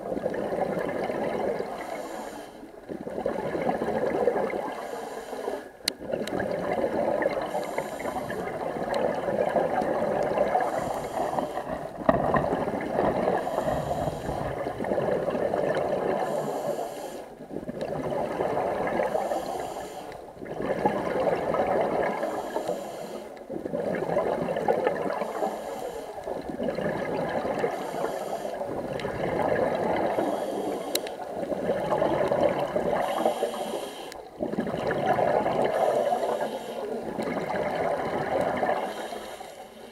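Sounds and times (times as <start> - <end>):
gurgling exhaust bubbles: 0.0 - 1.8, 2.9 - 4.8, 5.9 - 16.4, 17.4 - 19.3, 20.3 - 22.4, 23.4 - 25.3, 26.3 - 27.9, 28.6 - 33.4, 34.2 - 39.0
regulator air hiss: 1.8 - 2.6, 4.8 - 5.6, 10.6 - 11.7, 16.2 - 17.3, 19.1 - 20.1, 22.2 - 23.4, 25.2 - 26.2, 27.7 - 28.6, 30.2 - 31.2, 33.0 - 34.2, 35.7 - 37.0, 38.8 - 39.9.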